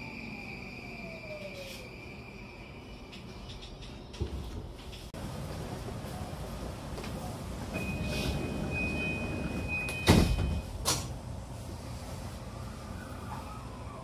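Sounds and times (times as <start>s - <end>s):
train rumble: 0.0s - 14.0s
train doors shutting with thud: 6.9s - 11.2s.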